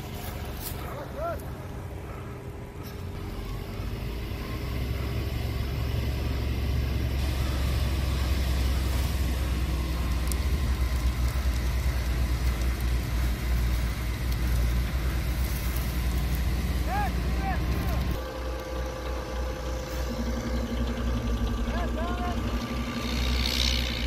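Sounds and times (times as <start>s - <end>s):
fire truck engine rumbling: 0.0s - 24.0s
steady hiss: 6.7s - 18.9s.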